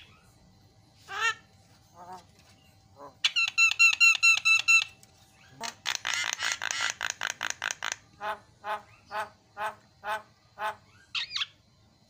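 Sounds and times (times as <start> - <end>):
bird calling: 2.0 - 11.6.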